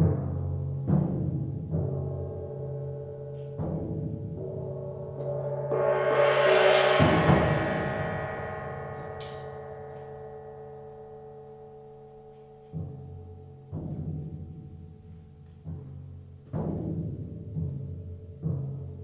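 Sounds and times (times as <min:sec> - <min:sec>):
timpani strokes: 0:03.5 - 0:11.5
suspended cymbal swell: 0:04.2 - 0:12.6.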